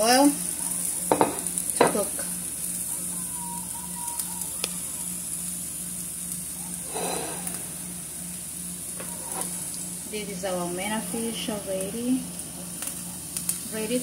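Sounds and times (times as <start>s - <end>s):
onions sizzling in oil: 0.0s - 14.0s
spatula scraping a pan: 6.9s - 7.6s.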